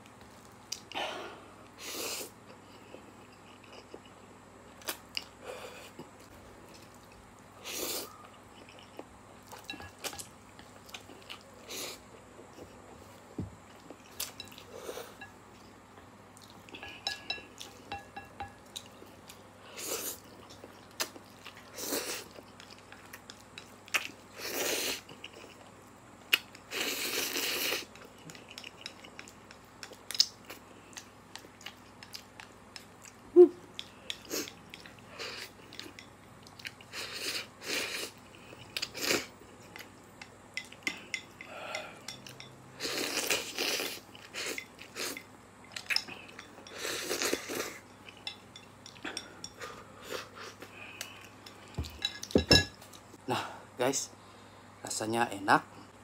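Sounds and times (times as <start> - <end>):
person chewing: 2.0 - 12.8, 18.7 - 53.1
chopsticks tapping ceramic bowl: 16.8 - 18.7.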